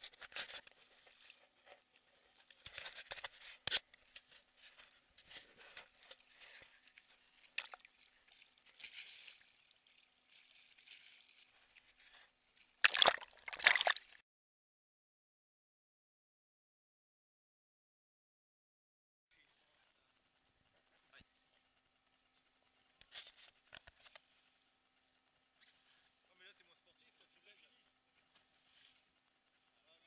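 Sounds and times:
loud splashing: 0:12.8 - 0:14.0.

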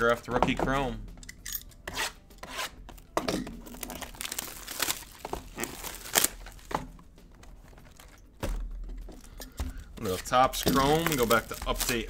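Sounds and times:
plastic wrapping crinkling and tearing: 0:03.6 - 0:06.8, 0:07.4 - 0:08.3, 0:10.1 - 0:12.0.

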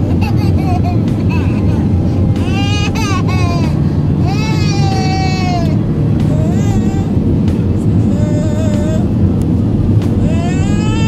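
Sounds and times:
airliner cabin rumble: 0:00.0 - 0:11.0
infant crying: 0:02.4 - 0:05.8, 0:10.3 - 0:11.0.

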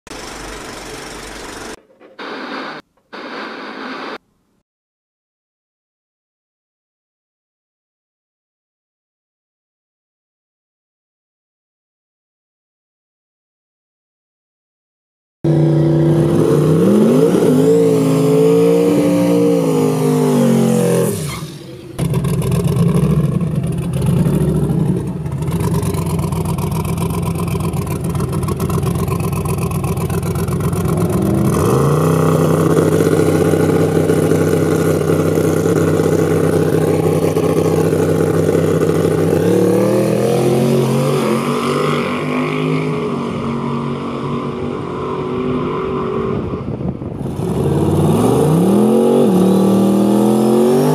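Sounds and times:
drag truck engine revving: 0:00.1 - 0:02.8, 0:15.5 - 0:46.6, 0:47.2 - 0:50.9.

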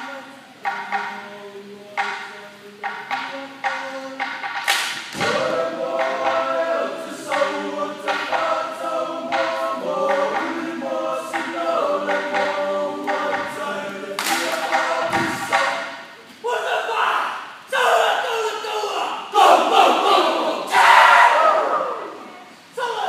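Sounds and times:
men singing in harmony: 0:00.0 - 0:04.5, 0:05.2 - 0:16.1
sharp hand claps: 0:04.4 - 0:06.5, 0:14.2 - 0:15.9.

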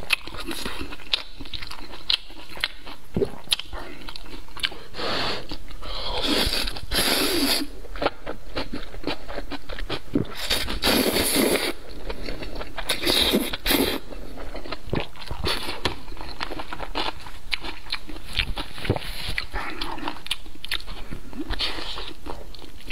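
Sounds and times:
wet chewing and lip smacks: 0:00.0 - 0:04.8, 0:14.4 - 0:22.9
person slurping noodles: 0:05.0 - 0:07.7, 0:10.2 - 0:11.8, 0:12.9 - 0:14.0.

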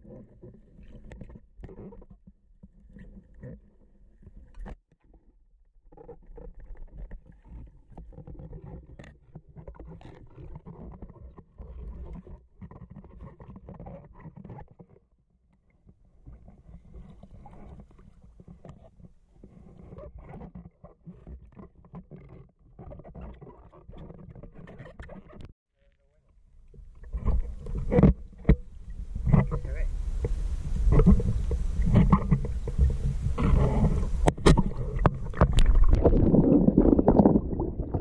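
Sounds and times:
underwater knocks and clicks: 0:00.0 - 0:05.2, 0:06.0 - 0:25.5, 0:26.6 - 0:38.0
underwater water churning: 0:26.8 - 0:38.0.

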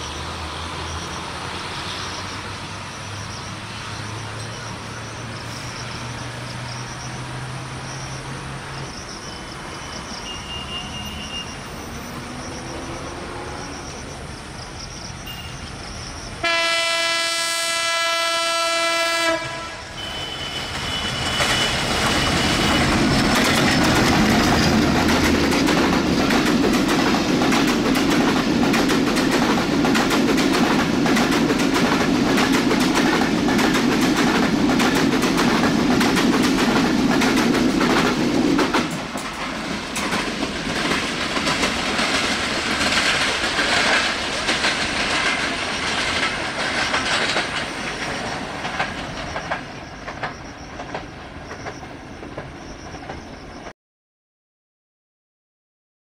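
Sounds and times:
train wheels clattering on rails: 0:20.0 - 0:53.7.

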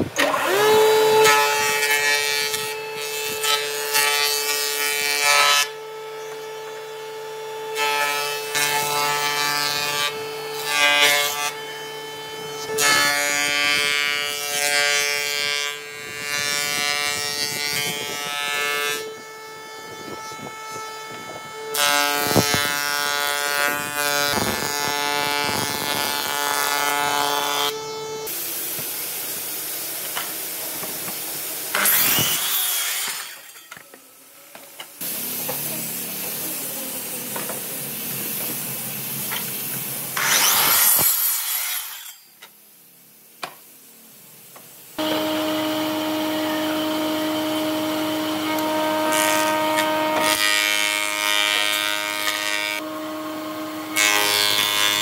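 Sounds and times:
jointer cutterhead whine: 0:00.0 - 0:33.3, 0:45.0 - 0:55.0
board being cut by jointer: 0:00.0 - 0:33.9, 0:35.0 - 0:42.2, 0:45.0 - 0:55.0.

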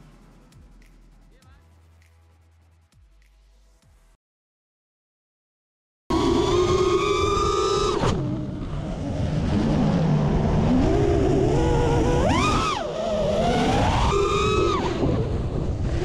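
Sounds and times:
quadcopter motors whining: 0:06.1 - 0:16.0
wind rushing over microphone: 0:06.1 - 0:16.0.

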